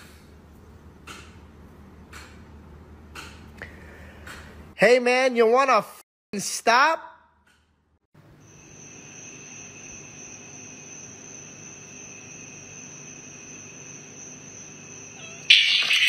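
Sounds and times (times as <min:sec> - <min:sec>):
high-pitched insect trill: 0:08.4 - 0:16.0.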